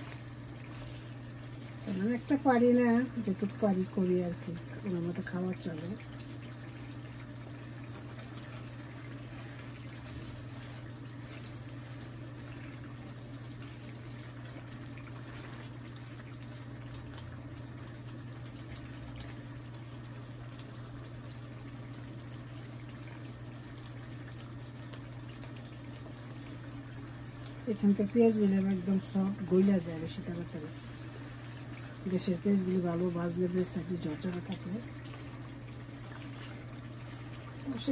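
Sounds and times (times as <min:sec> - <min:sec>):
wooden spatula stirring: 0:00.0 - 0:01.8, 0:08.0 - 0:14.0, 0:29.5 - 0:32.9, 0:35.0 - 0:37.9
curry simmering and bubbling: 0:00.0 - 0:37.9
steady low hum: 0:00.0 - 0:37.9.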